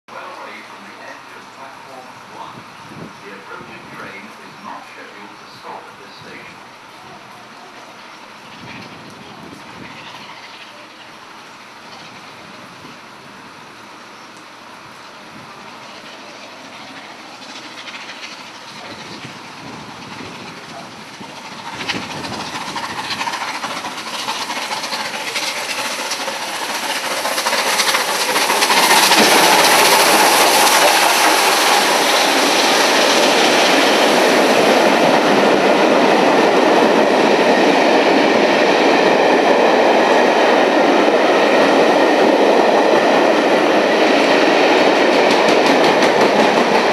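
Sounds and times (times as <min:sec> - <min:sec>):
steam locomotive approaching at speed: 0:00.1 - 0:46.9
train wheels clattering on rails: 0:15.6 - 0:46.9.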